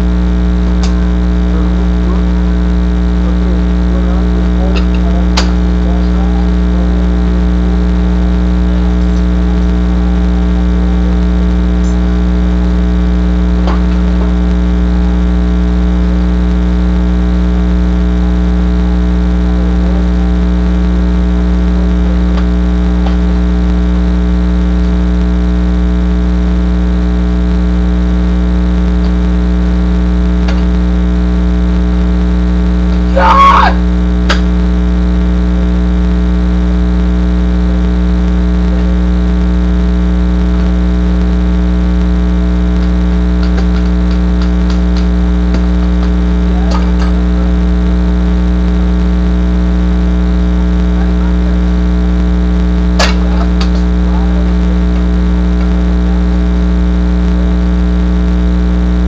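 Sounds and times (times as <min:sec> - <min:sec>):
loud electrical hum: 0:00.0 - 0:59.0
person shouting: 0:33.0 - 0:33.9.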